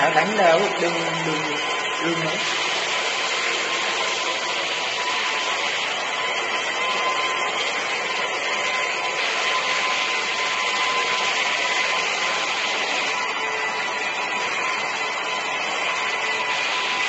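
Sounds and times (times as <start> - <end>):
wet-and-dry vacuum running: 0.0 - 17.0.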